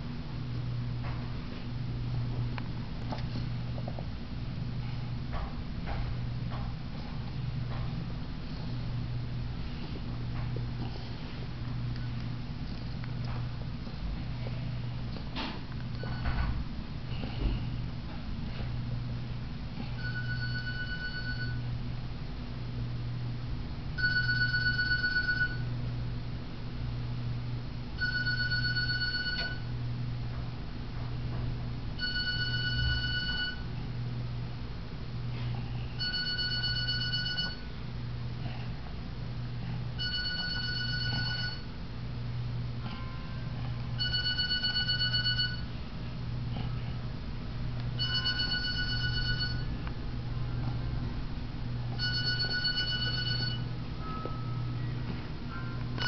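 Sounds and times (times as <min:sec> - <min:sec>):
steady low hum: 0:00.0 - 0:56.0
telephone ringing: 0:20.0 - 0:21.6, 0:24.0 - 0:25.7, 0:28.0 - 0:29.7, 0:32.0 - 0:33.7, 0:36.0 - 0:37.7, 0:40.0 - 0:41.7, 0:44.0 - 0:45.7, 0:48.0 - 0:49.7, 0:52.0 - 0:54.5.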